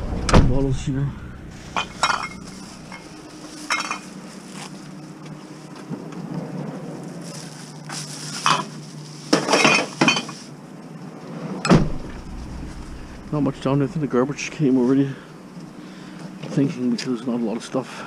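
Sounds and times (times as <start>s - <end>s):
glass bottles clinking: 1.7s - 4.2s, 8.4s - 10.4s.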